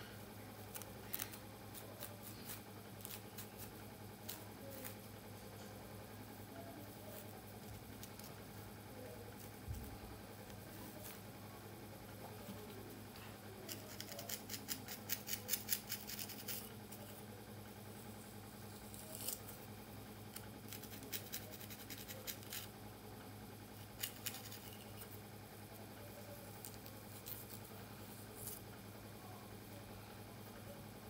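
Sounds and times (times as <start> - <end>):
faint steady hum: 0.0 - 31.0
comb scratching through hair: 0.7 - 5.0, 10.6 - 11.2, 13.7 - 17.2, 23.8 - 25.2, 26.5 - 28.6.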